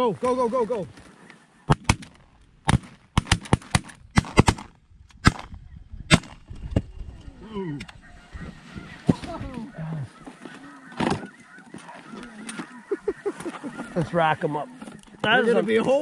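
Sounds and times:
shotgun blasts: 1.7s - 5.5s, 6.1s - 6.4s
people calling: 7.2s - 16.0s.

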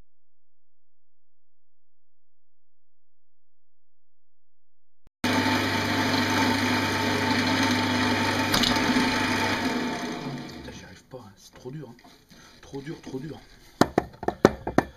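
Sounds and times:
wood lathe motor hum: 5.3s - 11.0s
gouge scraping spinning wood: 5.4s - 10.9s, 11.8s - 14.9s.

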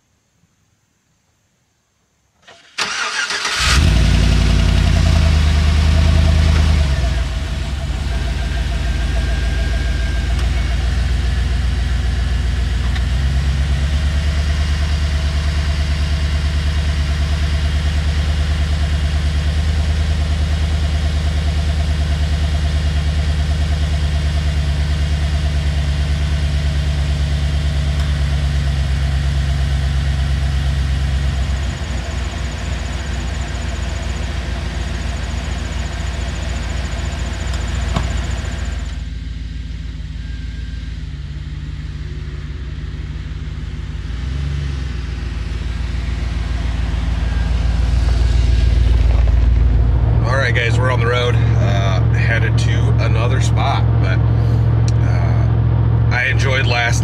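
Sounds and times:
pickup engine idling: 2.8s - 57.0s.

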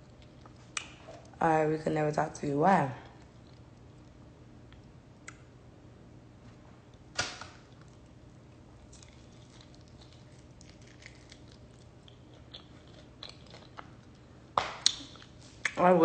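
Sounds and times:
faint chewing clicks: 3.1s - 5.5s, 7.7s - 15.8s
person biting fries: 8.8s - 14.2s.

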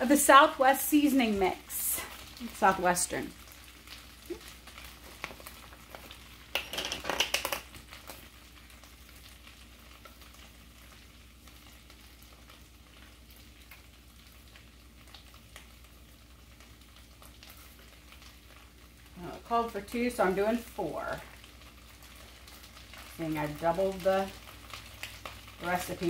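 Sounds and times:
rice sizzling in oil: 0.0s - 26.0s
clattering and rustling over pan: 4.3s - 8.2s.

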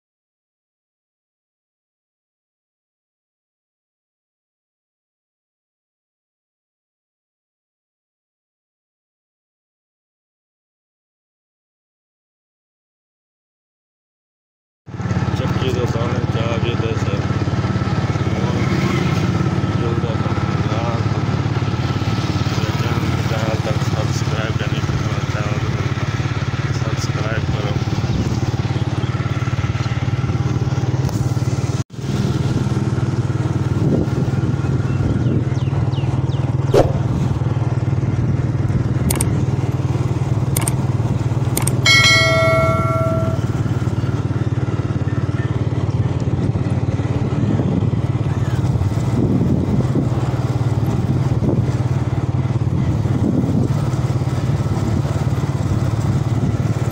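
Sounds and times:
motorcycle engine running: 14.9s - 56.9s.

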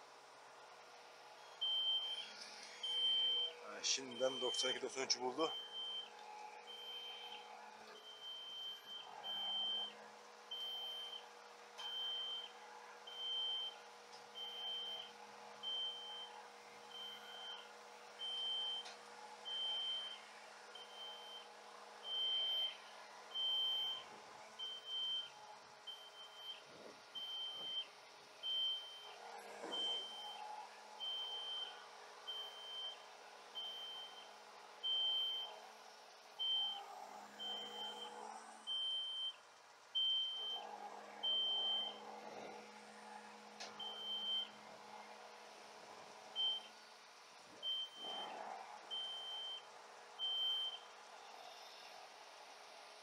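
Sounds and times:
truck engine humming: 0.0s - 9.9s
crane warning beeper: 1.6s - 12.5s, 13.1s - 13.8s, 14.4s - 16.3s, 16.9s - 17.6s, 19.5s - 21.4s, 22.0s - 25.3s, 25.9s - 26.6s, 27.2s - 30.4s, 31.0s - 33.0s, 33.6s - 34.2s, 34.8s - 35.6s, 36.4s - 39.4s, 40.0s - 40.6s, 41.2s - 42.0s, 43.8s - 44.6s, 46.4s - 46.7s, 47.6s - 49.6s, 50.2s - 50.8s.

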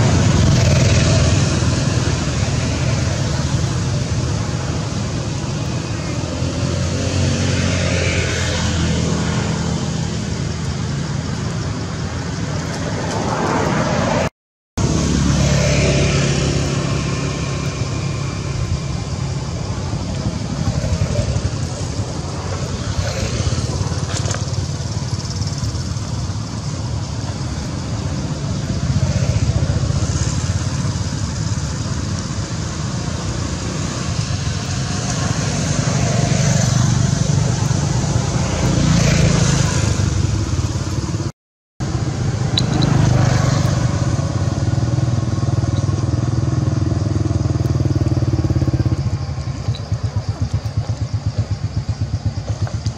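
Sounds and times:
passing traffic rumble: 0.0s - 52.9s.

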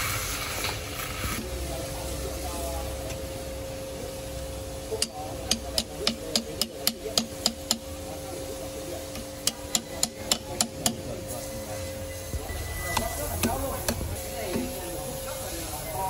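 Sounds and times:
steady hum: 0.0s - 16.0s
hammer striking steel bar: 9.4s - 11.0s.

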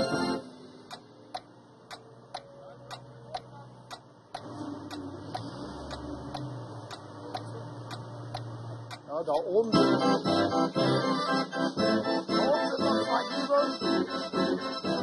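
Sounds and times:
organ mechanism ticking: 0.0s - 9.9s.

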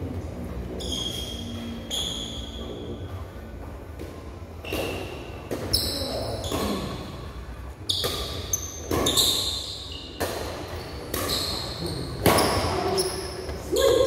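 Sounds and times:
racket striking shuttlecock: 4.6s - 5.7s, 8.0s - 9.2s, 10.1s - 11.6s.

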